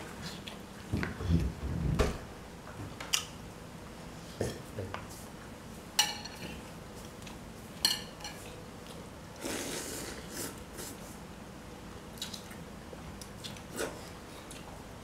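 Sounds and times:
slurping noodles: 0:09.4 - 0:11.0.

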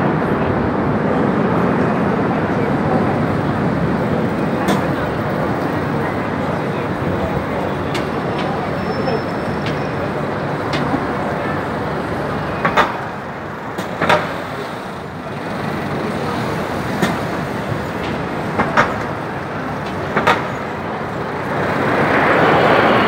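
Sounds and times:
city traffic: 0:00.0 - 0:23.0
military jets rushing overhead: 0:21.7 - 0:23.0.

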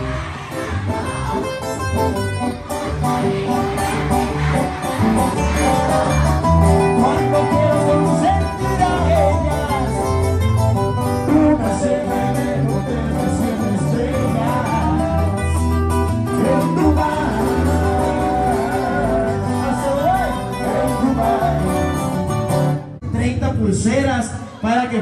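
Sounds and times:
bass notes: 0:00.0 - 0:23.6
live band guitar music: 0:00.0 - 0:23.9
person singing: 0:05.6 - 0:10.2, 0:16.4 - 0:22.1.

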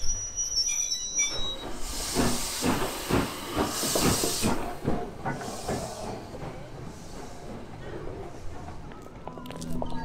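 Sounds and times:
train wheels squealing: 0:00.0 - 0:04.6
steam locomotive hissing: 0:00.0 - 0:08.8.

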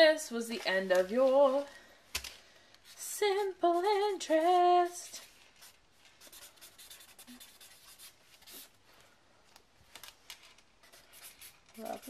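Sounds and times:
marker scratching on paper: 0:05.6 - 0:08.7, 0:10.8 - 0:12.0.

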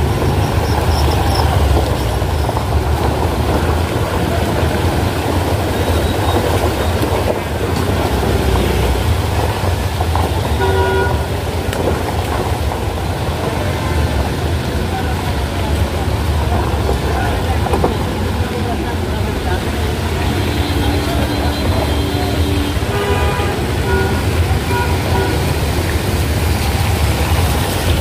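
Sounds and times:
road traffic rumble: 0:00.0 - 0:28.0
vehicle horn honking: 0:10.5 - 0:11.3, 0:20.3 - 0:25.5.

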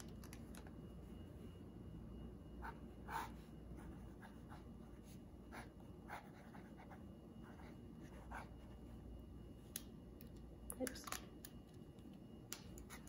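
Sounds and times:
pen scratching on paper: 0:02.6 - 0:08.7.

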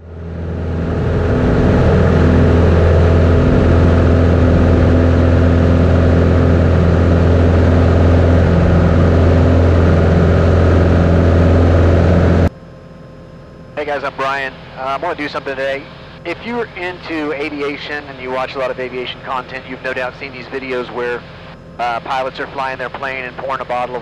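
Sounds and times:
light airplane engine drone: 0:00.0 - 0:24.0.

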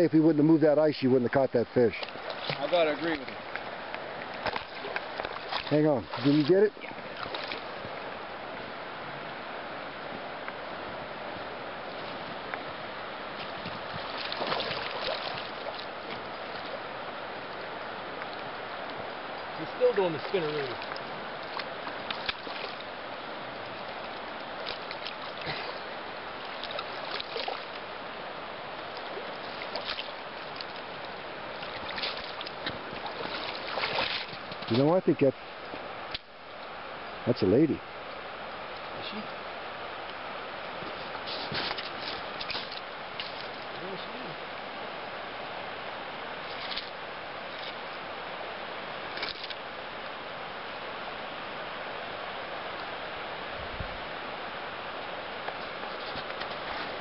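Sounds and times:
wading in shallows: 0:00.0 - 0:37.2, 0:37.8 - 0:57.0
creek water flowing: 0:00.0 - 0:57.0
steady outdoor hiss: 0:00.0 - 0:57.0
fish splashing in net: 0:13.5 - 0:15.9, 0:21.5 - 0:22.8, 0:26.5 - 0:27.7, 0:31.6 - 0:34.5.

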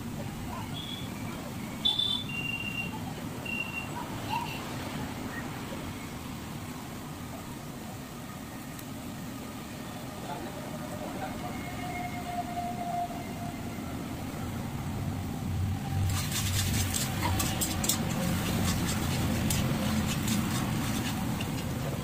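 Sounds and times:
spatula scraping metal pan: 0:16.1 - 0:22.0.

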